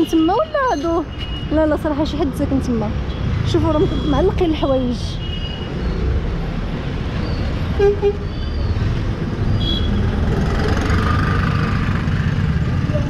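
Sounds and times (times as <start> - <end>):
traffic engines rumbling: 0.0 - 13.0
vehicle horn toots: 7.8 - 8.3, 9.6 - 10.1.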